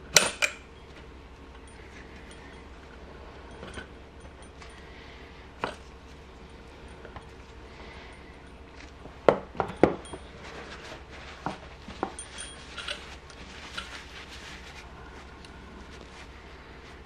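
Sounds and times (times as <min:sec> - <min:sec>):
metal clinks and knocks: 0:08.4 - 0:14.0
paper towel rustling: 0:10.3 - 0:17.0.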